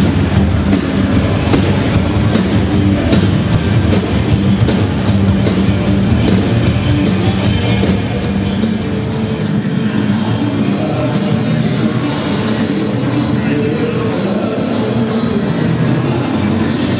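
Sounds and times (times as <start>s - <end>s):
drum kit: 0.0s - 9.9s
guitar: 0.0s - 16.9s
loud rock music: 0.0s - 16.9s.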